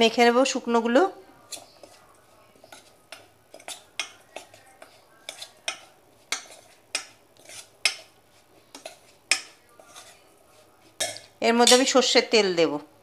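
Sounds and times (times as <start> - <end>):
metal spoon stirring in steel bowl: 0.1 - 12.2.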